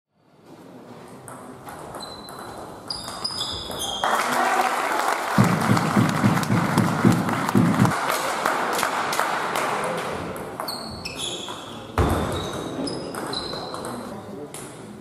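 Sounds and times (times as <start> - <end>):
low pulsing beat: 5.4 - 7.9.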